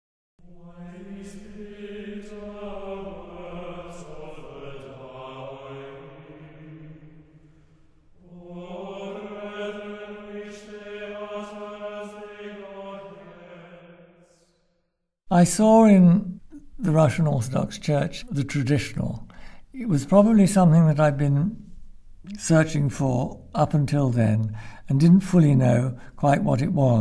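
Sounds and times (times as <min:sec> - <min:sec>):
slow vocal chant: 0:00.4 - 0:14.8.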